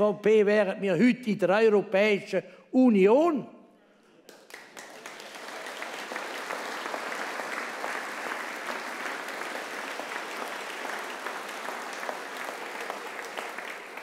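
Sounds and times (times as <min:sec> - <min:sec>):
crowd applauding: 0:04.3 - 0:14.0.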